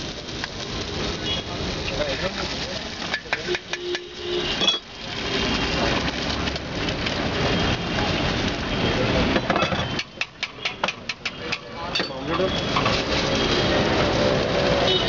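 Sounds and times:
eggs sizzling in a pan: 0.0s - 14.9s
metal utensil clinking on pan: 3.1s - 4.9s, 9.5s - 12.4s.

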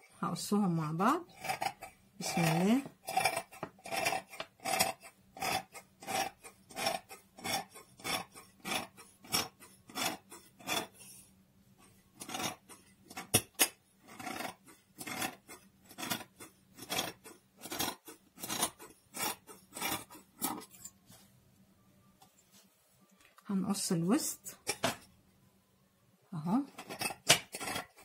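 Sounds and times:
shears cutting fabric: 1.3s - 11.0s, 12.2s - 20.7s.

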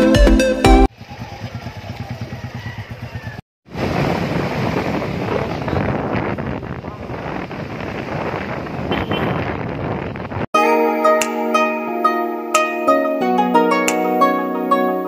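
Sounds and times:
motorcycle running at speed: 0.9s - 10.4s
wind and road noise: 0.9s - 10.5s
electronic intro music: 10.6s - 15.0s.

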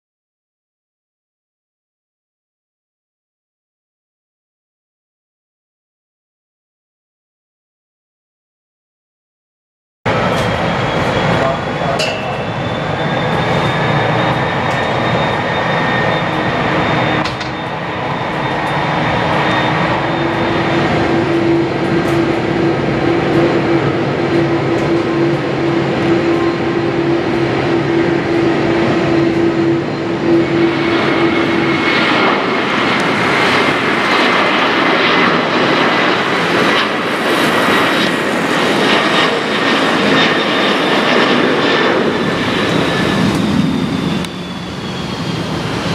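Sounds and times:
jet engine roar with high whine: 10.1s - 45.9s.

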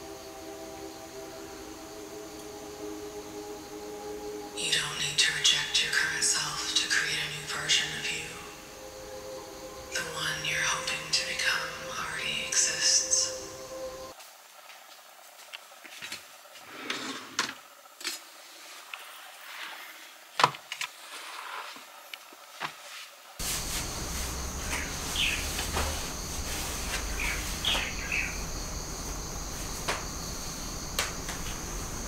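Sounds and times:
low background noise: 0.0s - 16.6s.

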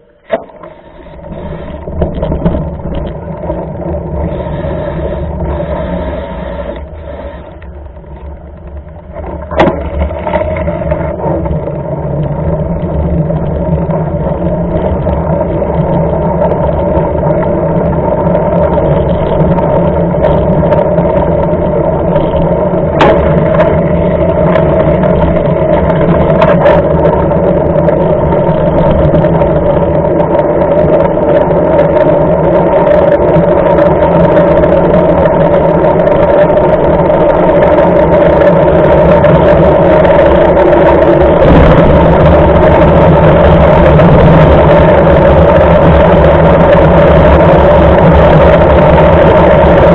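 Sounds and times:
tyre noise on wet road: 0.2s - 49.9s
wind rushing: 37.8s - 49.9s.

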